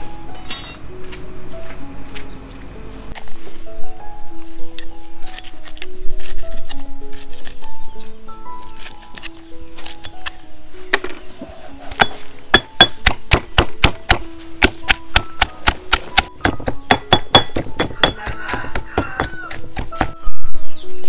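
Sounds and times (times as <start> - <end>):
background music: 0.0 - 21.0.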